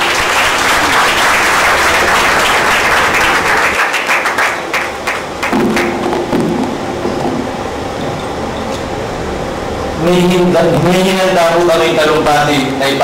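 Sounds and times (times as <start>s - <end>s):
audience applause: 0.0s - 6.0s
microphone thumps and rubbing: 5.5s - 8.3s.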